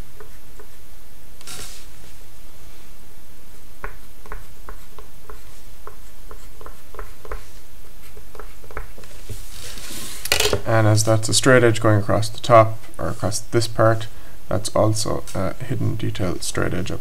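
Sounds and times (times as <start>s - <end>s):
pencil scratching on paper: 3.5s - 9.2s.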